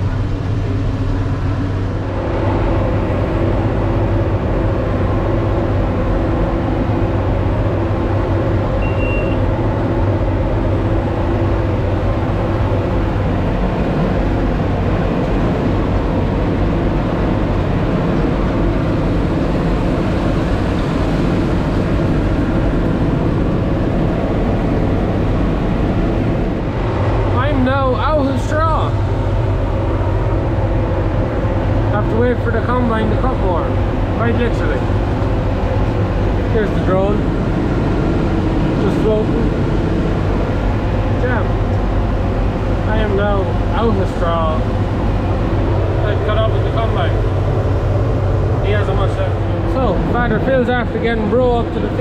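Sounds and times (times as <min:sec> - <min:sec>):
tractor engine running: 0:00.0 - 0:52.0
high beep: 0:08.8 - 0:09.5.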